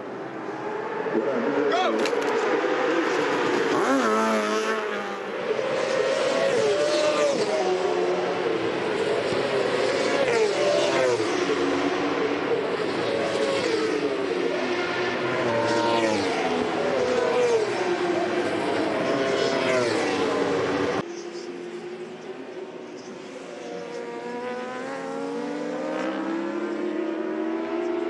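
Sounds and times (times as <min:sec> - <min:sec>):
motorcycle engine revving: 0:02.3 - 0:08.5, 0:23.7 - 0:28.0.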